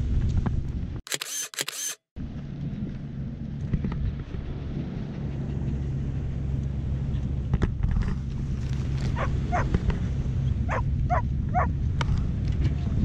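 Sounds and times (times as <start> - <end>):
puppy whining: 9.1 - 9.7, 10.7 - 11.7.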